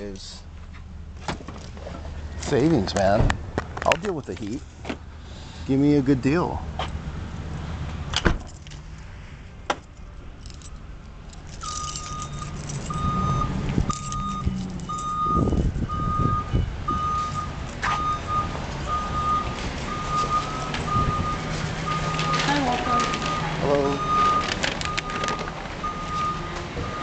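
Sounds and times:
reversing alarm beeping: 0:11.6 - 0:27.0.

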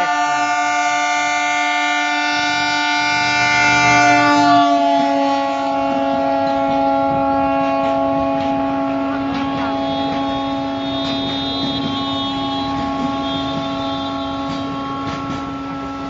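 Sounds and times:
locomotive horn blast: 0:00.0 - 0:16.0
rumble of passing train coaches: 0:00.0 - 0:16.0.

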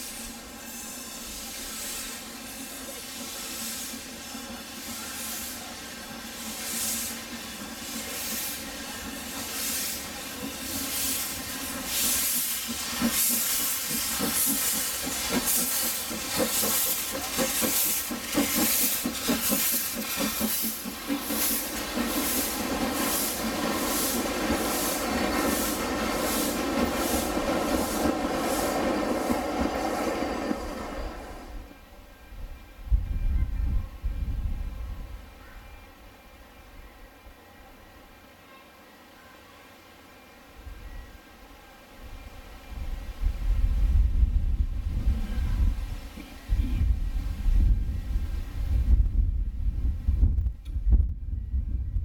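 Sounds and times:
steam hissing: 0:00.0 - 0:31.8
steam locomotive chuffing: 0:00.0 - 0:31.9.

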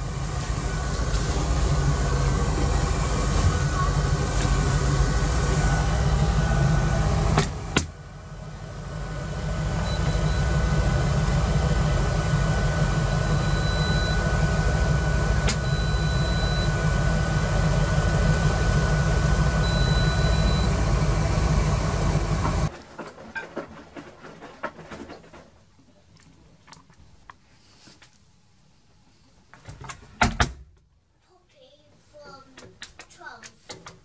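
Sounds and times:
loud steady hum: 0:00.0 - 0:22.7
washing machine panel beeps: 0:09.8 - 0:10.8, 0:12.6 - 0:17.0, 0:18.3 - 0:21.5.

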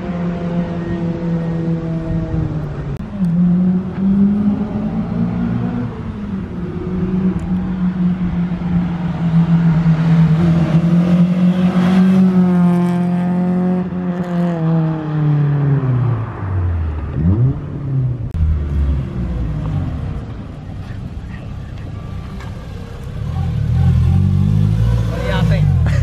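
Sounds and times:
engine revving: 0:23.2 - 0:26.0.

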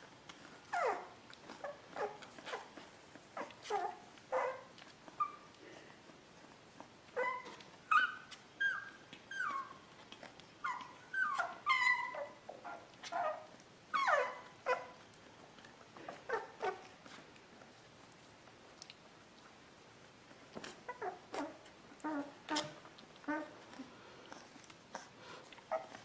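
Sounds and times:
puppy whimpering: 0:00.4 - 0:05.7, 0:06.7 - 0:15.1, 0:15.8 - 0:17.0, 0:20.6 - 0:26.0.

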